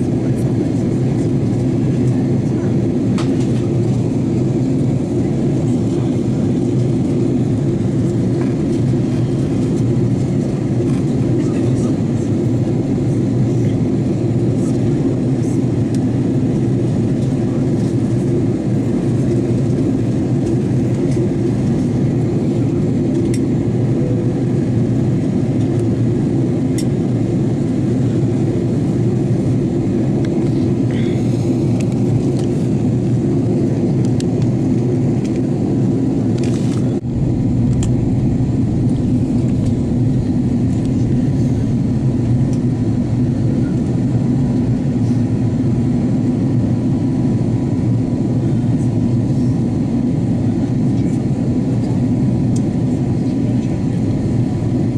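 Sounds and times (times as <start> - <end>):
airliner engines droning: 0.0 - 54.9
air rushing past fuselage: 36.9 - 45.4.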